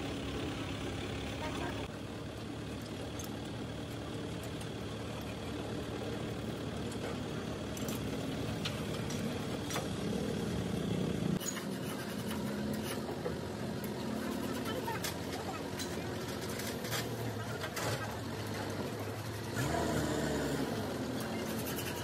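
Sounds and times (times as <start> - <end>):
truck engine idling: 0.0 - 11.4.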